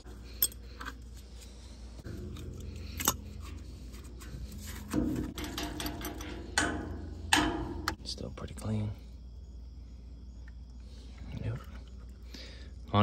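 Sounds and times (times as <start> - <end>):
metal clatter: 2.0 - 8.0
metal clicks and clinks: 4.9 - 8.0.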